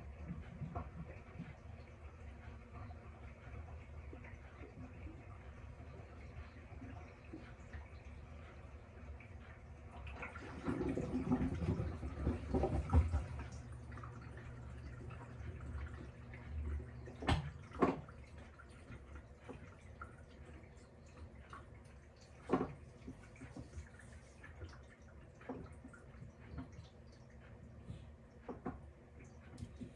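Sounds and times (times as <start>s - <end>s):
water sloshing and dripping: 0.0s - 29.9s
low motor hum: 11.0s - 29.9s.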